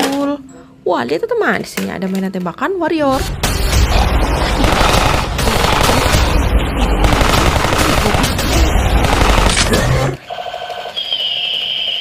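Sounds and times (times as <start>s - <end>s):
rapid machine-gun fire: 3.1s - 10.2s.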